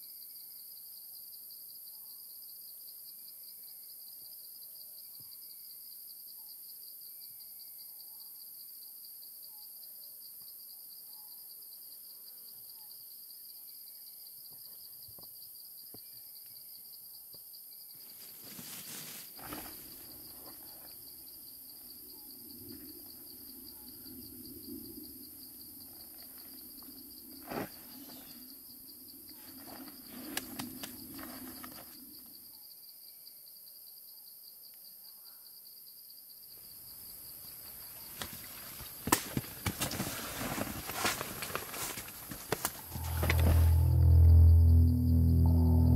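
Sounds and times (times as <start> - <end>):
insects chirring: 0.1 - 45.9
rustles: 18.0 - 21.1, 29.3 - 32.0, 37.6 - 44.5
low hum: 42.9 - 45.9.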